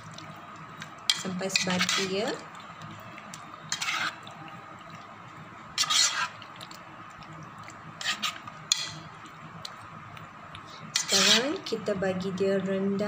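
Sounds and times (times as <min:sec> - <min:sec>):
spoon stirring thick marinade: 0:00.0 - 0:11.8
spoon scraping metal pot: 0:01.1 - 0:02.3, 0:03.7 - 0:04.3, 0:05.8 - 0:06.4, 0:08.0 - 0:09.1, 0:10.9 - 0:11.7.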